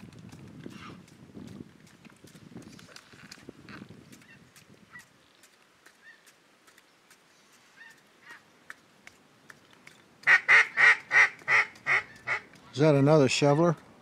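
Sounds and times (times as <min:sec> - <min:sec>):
faint ticks: 0:04.1 - 0:10.3
duck call quacks: 0:10.3 - 0:12.4.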